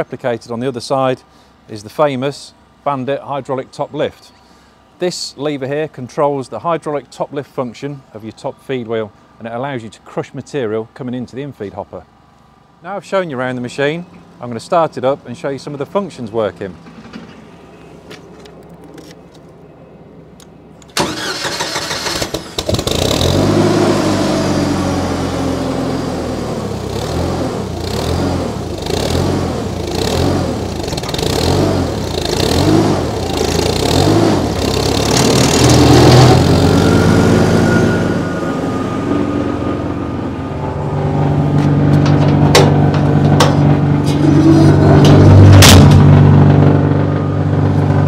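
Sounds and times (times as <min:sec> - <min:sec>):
engine starter cranking: 0:20.8 - 0:23.4, 0:30.7 - 0:36.5
petrol engine running and revving: 0:21.0 - 0:48.0.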